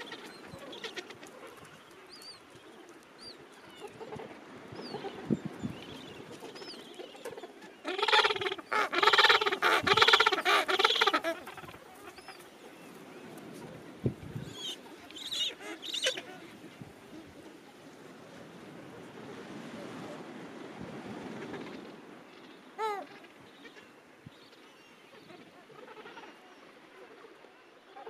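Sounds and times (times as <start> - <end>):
low calling of penguin colony: 6.2 - 17.9, 22.5 - 24.1, 25.2 - 28.0
penguin braying call: 7.9 - 11.7.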